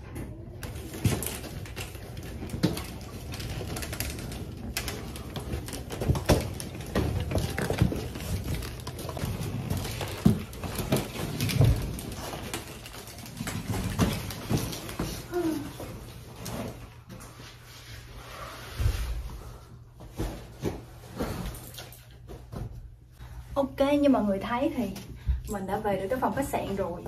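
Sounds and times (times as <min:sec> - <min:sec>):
suitcase wheels rumbling: 0:00.0 - 0:16.9
luggage knocks and bumps: 0:00.7 - 0:15.3.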